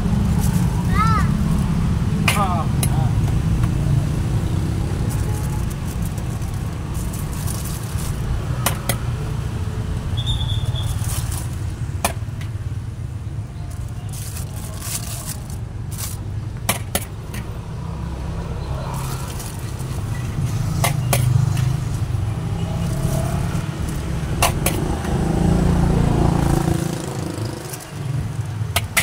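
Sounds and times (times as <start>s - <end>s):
plastic rustling: 5.0s - 8.6s, 10.7s - 11.8s, 13.7s - 16.4s, 18.9s - 20.2s.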